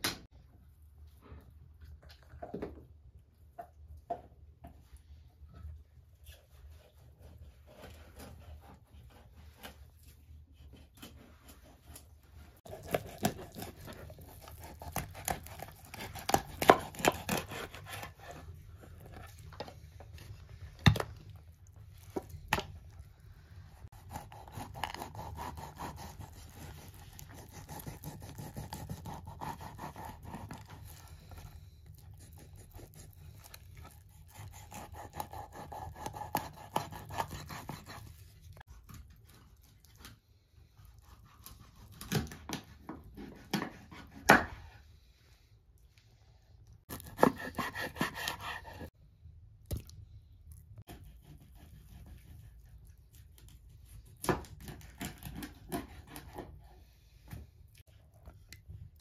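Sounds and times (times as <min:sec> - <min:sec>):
knife cutting through fish: 0:10.6 - 0:19.3, 0:23.8 - 0:39.1, 0:46.9 - 0:48.9.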